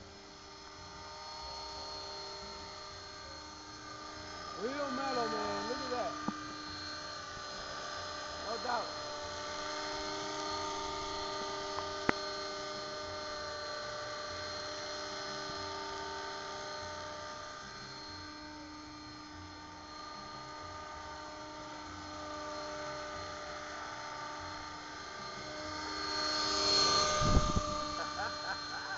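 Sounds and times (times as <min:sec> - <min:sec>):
model helicopter rotor whine: 0:00.0 - 0:28.9.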